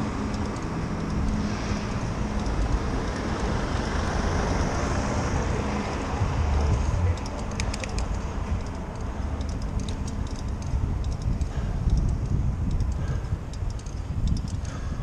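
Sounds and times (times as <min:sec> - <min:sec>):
low engine hum: 0:00.0 - 0:15.0
road traffic noise: 0:00.0 - 0:15.0.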